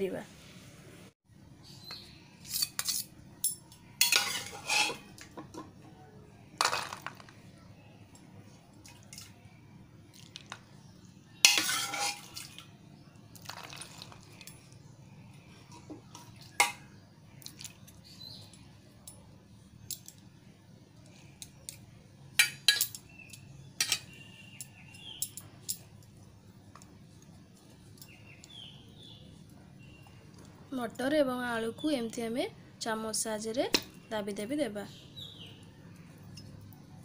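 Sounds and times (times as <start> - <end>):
spoon scraping a steel plate: 2.4 - 3.1, 4.0 - 5.1, 11.4 - 12.3.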